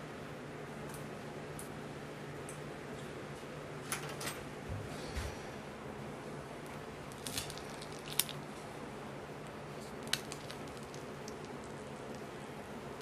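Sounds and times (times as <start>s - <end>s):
whipped cream squelching: 6.6s - 13.0s.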